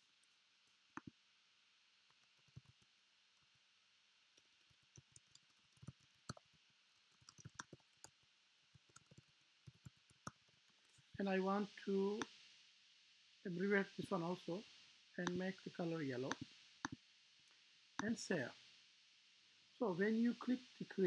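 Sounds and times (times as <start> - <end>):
typing on computer keyboard: 4.9 - 6.4, 7.1 - 7.9, 8.8 - 10.4.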